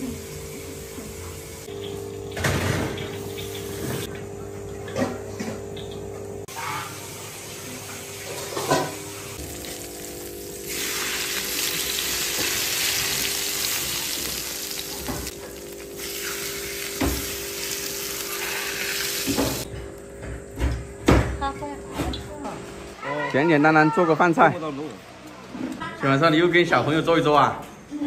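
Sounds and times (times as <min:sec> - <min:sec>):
hot oil sizzling: 0:00.0 - 0:04.1, 0:06.4 - 0:19.7.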